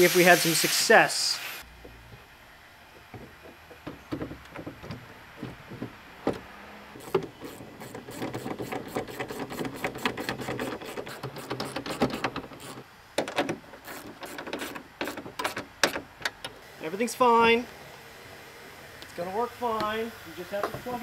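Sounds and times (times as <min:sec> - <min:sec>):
hand tool clicking and rattling: 0:07.0 - 0:16.6.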